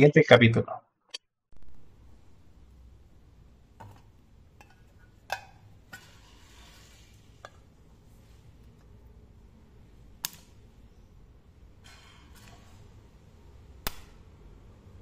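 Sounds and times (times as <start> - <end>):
spot welder sharp snaps: 10.2 - 10.6, 13.8 - 14.2.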